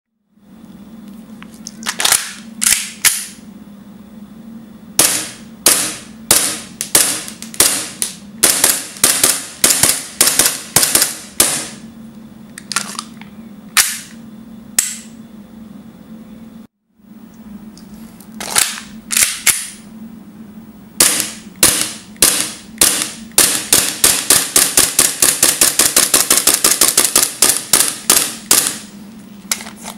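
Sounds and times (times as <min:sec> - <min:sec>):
airsoft pistol shots: 0:05.0 - 0:11.8, 0:21.0 - 0:28.9.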